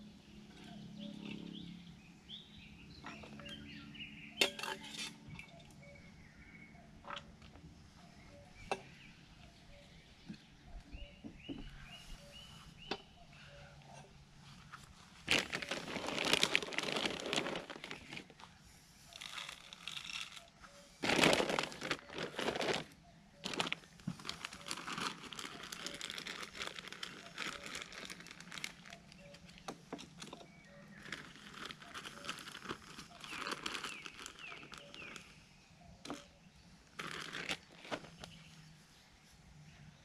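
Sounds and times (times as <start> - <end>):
plastic bag crinkling: 15.2 - 18.4, 19.2 - 29.4, 30.2 - 35.3, 36.9 - 38.4.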